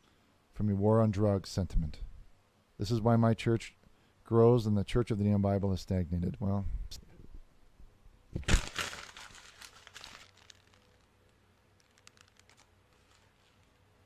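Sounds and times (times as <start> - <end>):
paper crumpling: 8.4 - 14.0.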